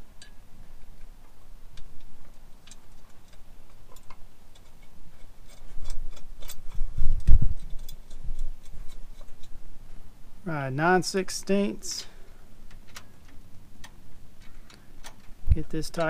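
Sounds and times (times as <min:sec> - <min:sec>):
small metallic clicks and taps: 0:00.2 - 0:09.6, 0:12.6 - 0:16.0.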